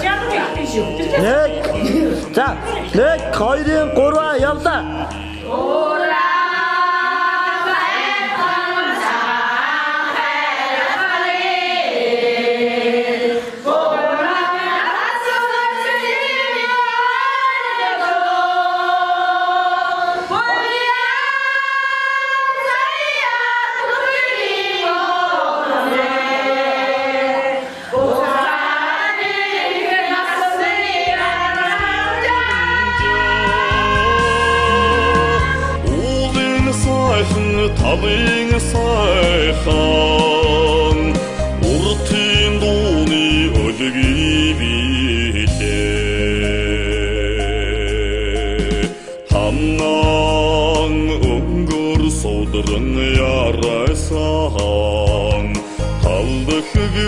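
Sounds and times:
low musical accompaniment: 0.0 - 6.7, 29.8 - 57.0
voices singing unaccompanied: 0.0 - 57.0.

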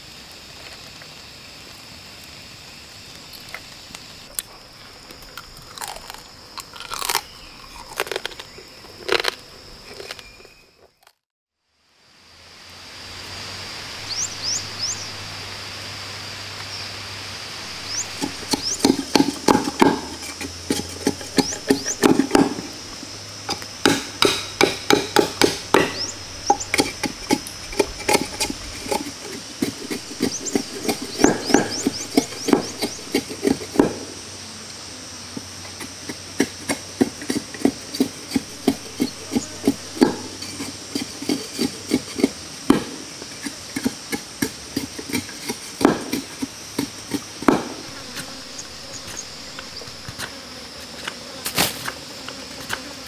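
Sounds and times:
knife chopping bamboo: 17.7 - 22.8, 23.5 - 34.1, 36.1 - 50.3.

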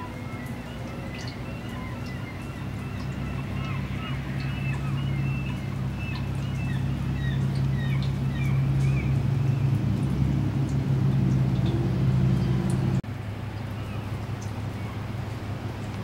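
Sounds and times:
small birds chirping: 0.0 - 9.8
low motor hum: 0.0 - 16.0.

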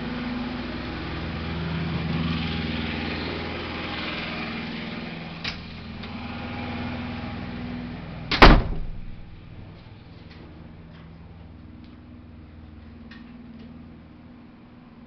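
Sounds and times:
motor hum: 0.0 - 15.0.

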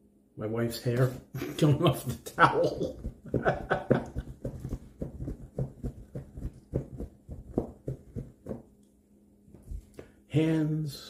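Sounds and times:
towel flapping and snapping: 2.8 - 8.7.

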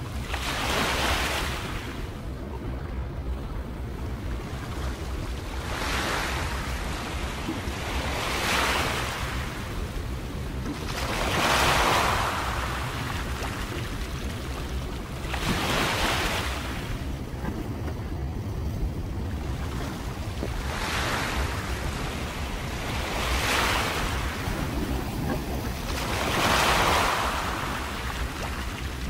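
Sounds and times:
small waves washing against rocks: 10.7 - 18.1, 19.4 - 29.0
steady low rumble: 12.1 - 29.0.

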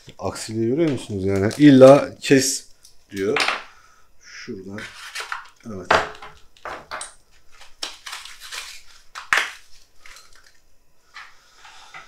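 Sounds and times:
plastic and cardboard crinkling: 7.3 - 10.6.

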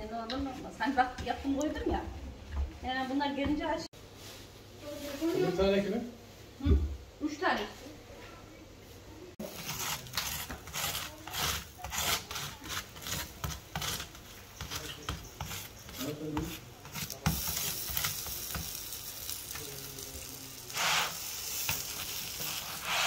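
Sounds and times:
frying sizzle on griddle: 9.4 - 23.0
rolling pin rolling dough: 9.5 - 18.8.

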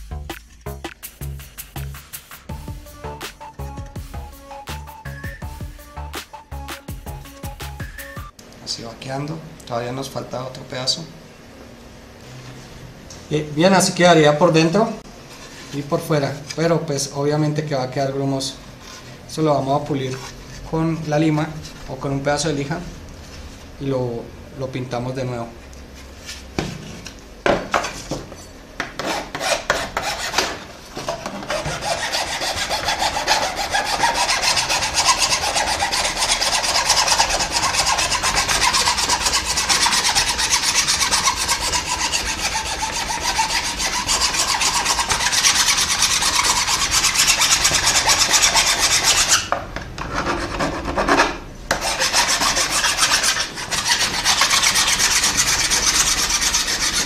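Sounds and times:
hand file rasping on plastic: 29.0 - 57.0.

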